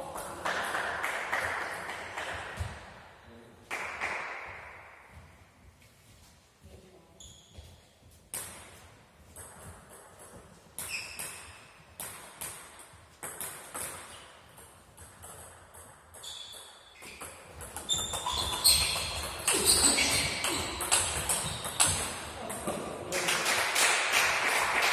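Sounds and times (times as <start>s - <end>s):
table tennis ball bouncing: 8.3s - 23.1s.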